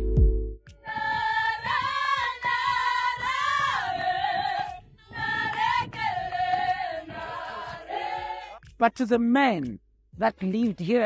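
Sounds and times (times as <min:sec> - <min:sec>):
group of voices singing: 0:00.8 - 0:08.6.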